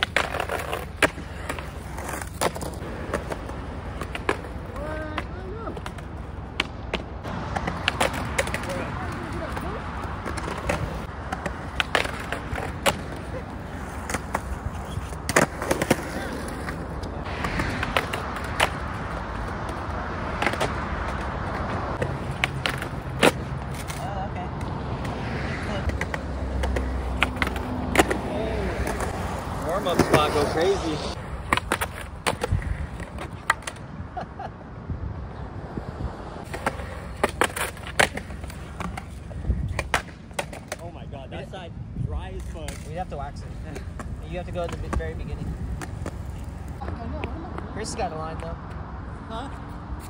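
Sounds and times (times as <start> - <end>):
skateboard grinding on concrete: 0.0 - 24.3, 25.0 - 33.8, 36.4 - 41.5
skateboard clacks: 0.0 - 25.2, 25.8 - 30.6, 31.4 - 34.0, 36.4 - 41.0, 42.4 - 47.7.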